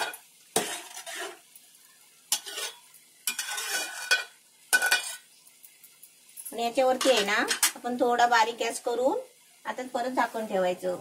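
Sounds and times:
metal spoon scraping a steel pot: 0.0s - 1.5s, 2.3s - 5.2s.

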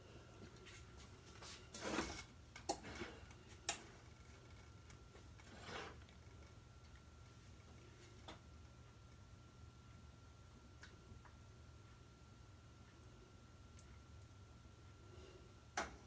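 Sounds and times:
glass dish scraping stovetop: 5.4s - 6.1s.

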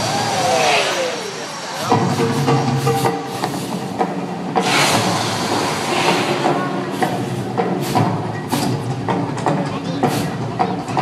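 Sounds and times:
gas flame bursts rushing: 4.6s - 8.8s.

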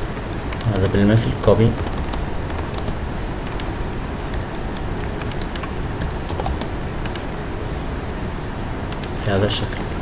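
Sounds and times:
steady background hiss: 0.0s - 10.0s
keyboard typing clicks: 0.5s - 3.7s, 4.3s - 7.3s, 8.9s - 9.2s.

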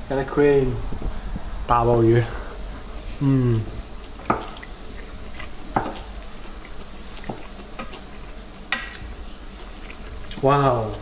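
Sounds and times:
faint steady hiss: 0.0s - 11.0s
chopsticks tapping and scraping: 4.1s - 11.0s.

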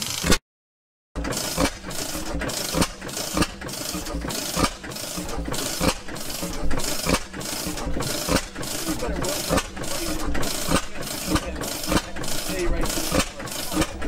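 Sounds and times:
gas engine exhaust firing: 1.2s - 14.0s.

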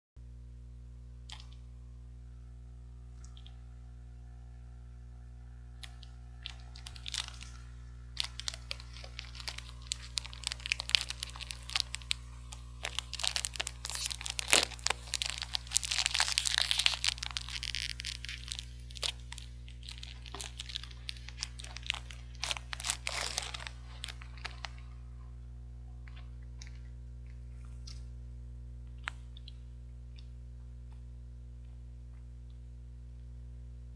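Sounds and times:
low hum: 0.2s - 33.9s
wrapper crinkling and tearing: 5.8s - 24.9s.

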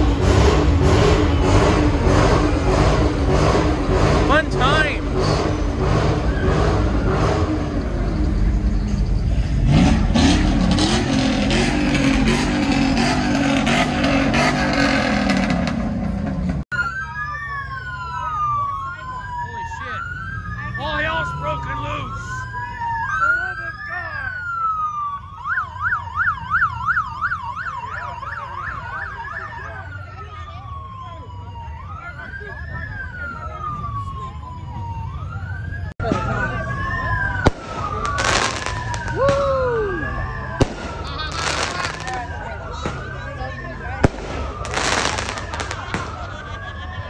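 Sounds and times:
siren wail: 0.0s - 8.8s, 10.1s - 15.9s, 16.7s - 47.0s
car engine revving up: 0.0s - 16.6s
car engines in slow traffic: 0.0s - 47.0s
police siren yelp: 16.7s - 47.0s.

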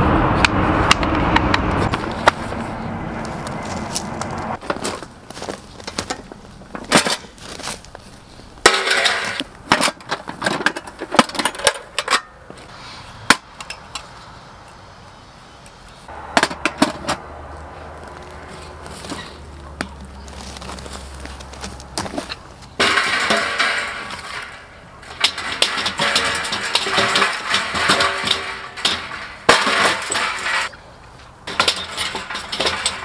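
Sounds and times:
camping gear clattering: 3.3s - 12.7s, 18.0s - 33.0s
metal toolbox set down: 5.9s - 7.8s, 8.6s - 12.3s, 16.4s - 17.2s, 22.0s - 30.8s, 31.5s - 33.0s.

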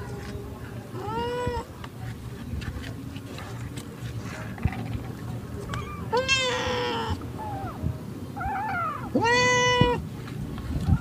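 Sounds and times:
cat meowing: 5.7s - 7.8s, 8.4s - 10.0s.

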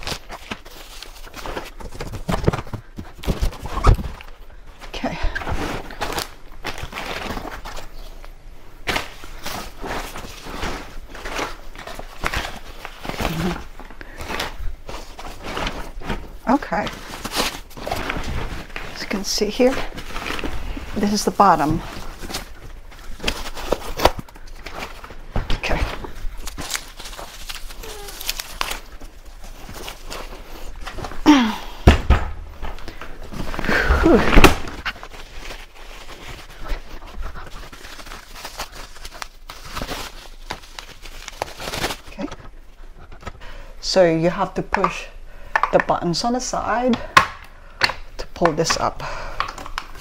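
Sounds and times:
plastic wrap and fabric rustling: 0.0s - 31.7s, 32.5s - 44.6s
heavy thunk on floor: 31.8s - 32.5s.

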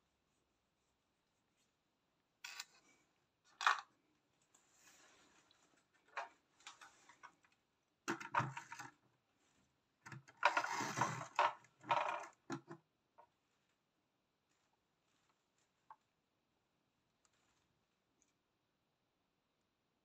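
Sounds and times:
plastic models clicking and scraping: 2.4s - 2.9s, 6.0s - 9.0s, 10.0s - 12.8s.

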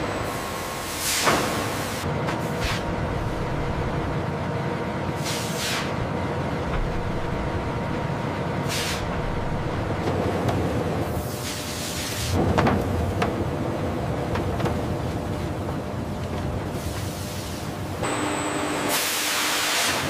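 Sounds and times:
press machinery running: 0.0s - 2.2s, 17.7s - 20.0s.

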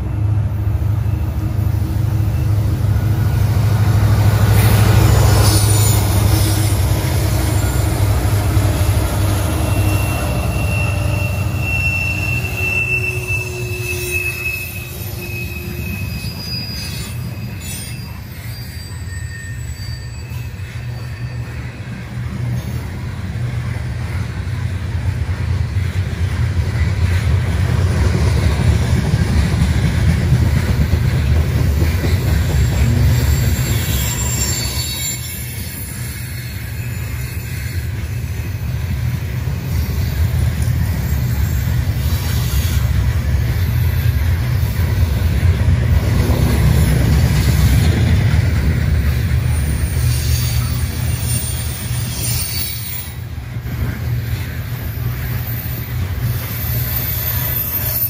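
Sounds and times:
train wheels rumbling on rail: 0.0s - 58.0s
wheel squeals: 4.2s - 22.9s, 30.6s - 58.0s.

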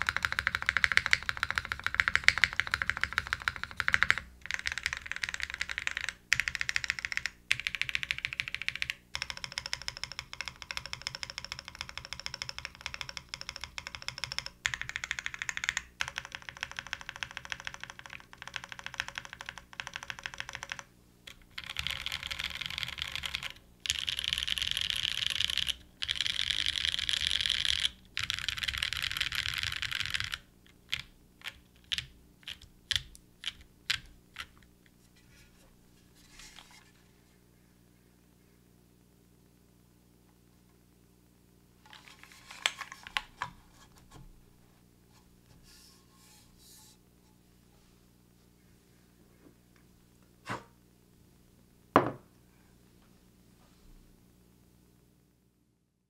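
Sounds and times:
mechanical keyboard typing: 0.0s - 34.6s.

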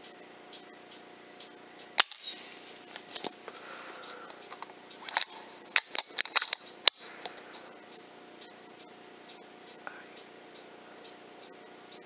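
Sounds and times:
air rifle mechanical clicks: 4.5s - 7.4s.

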